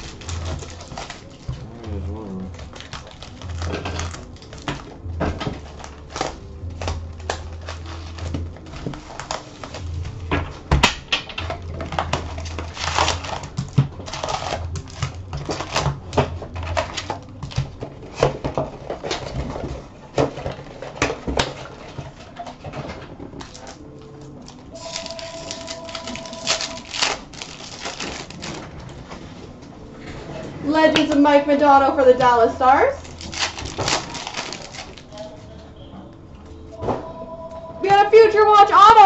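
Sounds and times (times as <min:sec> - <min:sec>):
card packs crinkling and rustling: 0:00.0 - 0:35.6.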